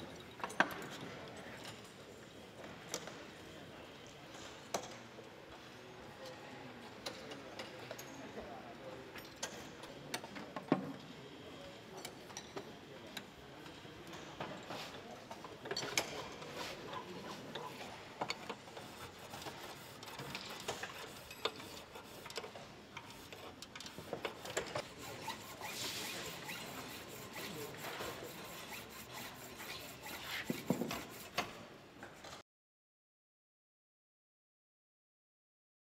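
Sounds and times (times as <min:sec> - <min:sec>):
hand files rasping on metal: 0:18.8 - 0:22.4, 0:23.1 - 0:31.5.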